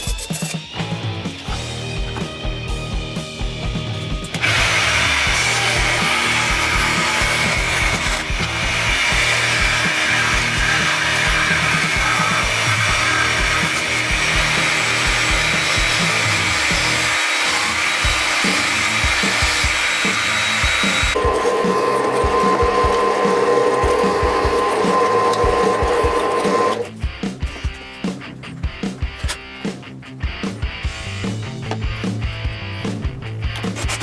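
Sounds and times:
drill press boring wood: 0:04.3 - 0:26.9
jigsaw cutting plywood: 0:04.4 - 0:26.9.

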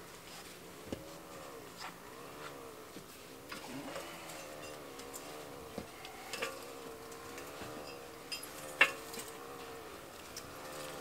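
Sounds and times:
low hum: 0:00.0 - 0:11.0
metal clinks and knocks: 0:04.0 - 0:11.0.

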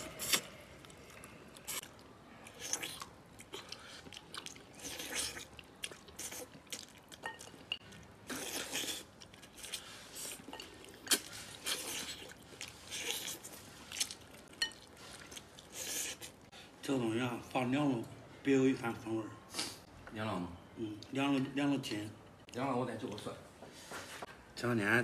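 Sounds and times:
chewing and crunching: 0:00.0 - 0:16.5.

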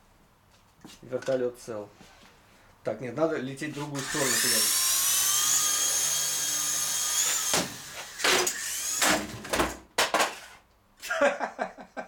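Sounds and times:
rc helicopter rotor motors whining: 0:04.0 - 0:09.0.

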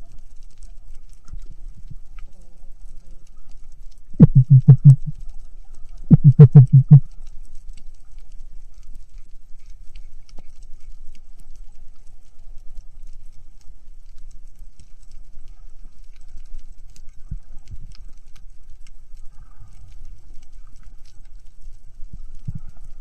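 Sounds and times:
faint underwater crackle: 0:00.0 - 0:23.0
rapid low knocks: 0:04.2 - 0:05.1.

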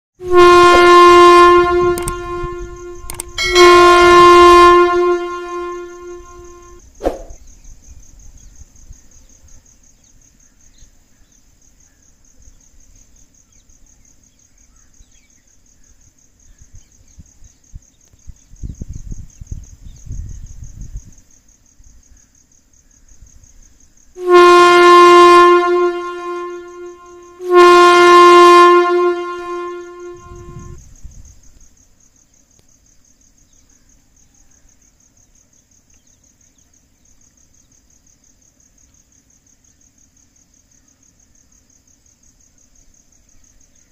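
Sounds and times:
train horn blasts with echo: 0:00.2 - 0:06.8, 0:24.2 - 0:30.8
high insect trill: 0:00.2 - 0:43.9.

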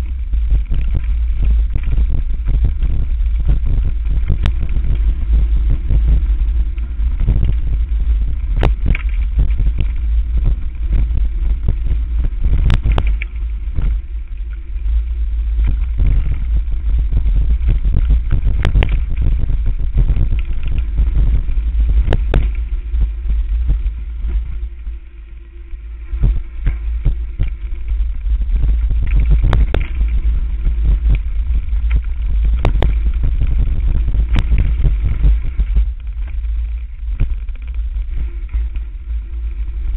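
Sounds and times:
wind rumble on microphone: 0:00.0 - 0:39.9
bike rattling and knocking: 0:26.2 - 0:39.8.

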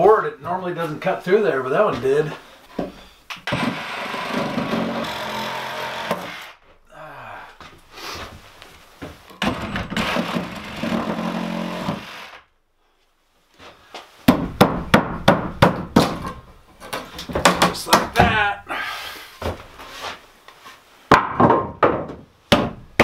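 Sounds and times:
power saw cutting wood: 0:03.5 - 0:06.6, 0:09.9 - 0:12.4
wood knocks: 0:21.1 - 0:23.0.

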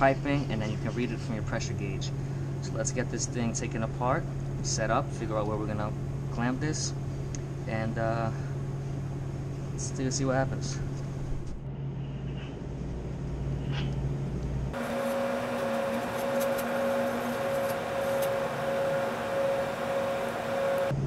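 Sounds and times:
condensing unit fan humming: 0:00.0 - 0:21.0
low hum: 0:14.7 - 0:21.0.

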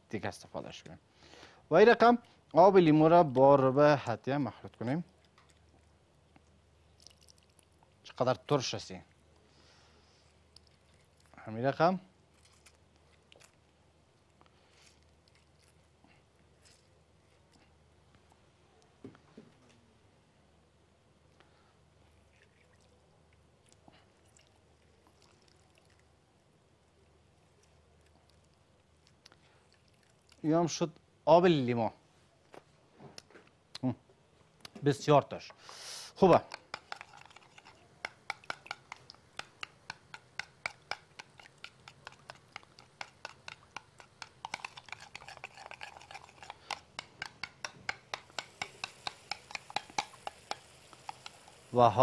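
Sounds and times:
spoon clicking in ceramic bowl: 0:36.3 - 0:51.4.

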